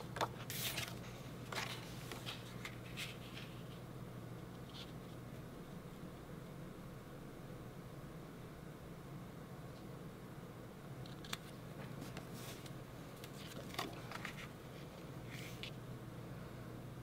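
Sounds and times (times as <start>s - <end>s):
low steady hum: 0.0s - 17.0s
paper rustling: 0.2s - 3.8s, 11.2s - 15.8s.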